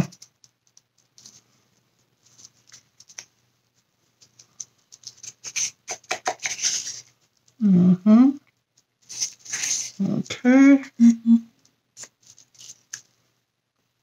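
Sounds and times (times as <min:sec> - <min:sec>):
plastic cup and stir stick clicking: 0:05.5 - 0:06.9.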